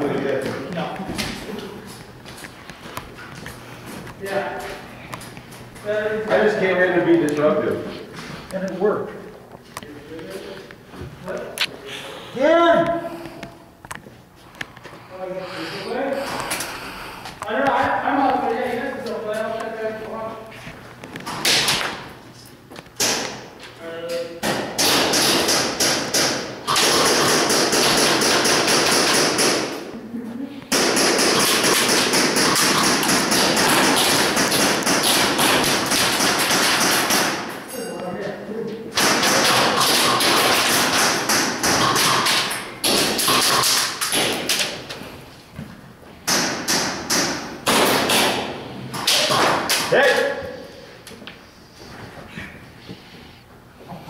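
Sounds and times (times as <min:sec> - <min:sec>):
airsoft guns firing rapidly: 0:24.5 - 0:29.8, 0:30.7 - 0:37.5, 0:39.0 - 0:44.6, 0:46.3 - 0:49.8.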